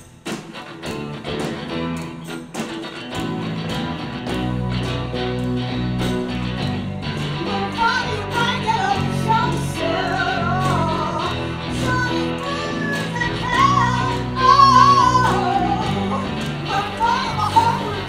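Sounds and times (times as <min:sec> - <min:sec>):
bass guitar: 0:00.0 - 0:18.0
electric guitar: 0:00.0 - 0:18.0
woman singing: 0:07.4 - 0:18.0.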